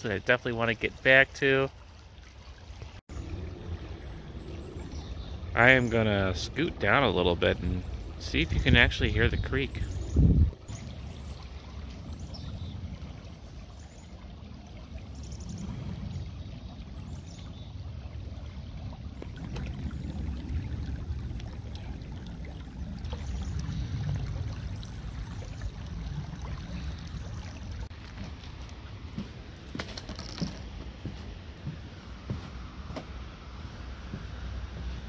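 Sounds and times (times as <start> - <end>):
water rippling over stones: 0.0 - 35.0
low rumble: 18.2 - 27.9.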